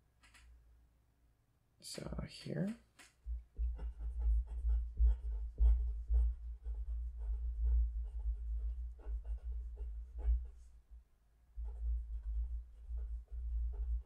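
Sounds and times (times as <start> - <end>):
pen scratching on paper: 3.3 - 11.0, 11.6 - 14.0.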